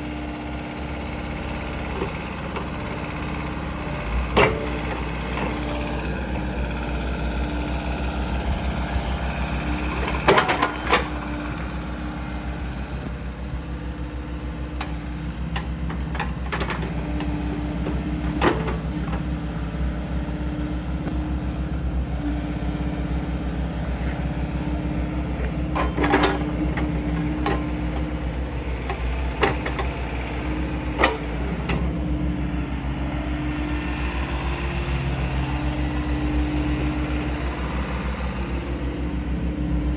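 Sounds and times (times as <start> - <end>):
excavator diesel engine running: 0.0 - 39.9
hydraulics whining: 0.0 - 39.9.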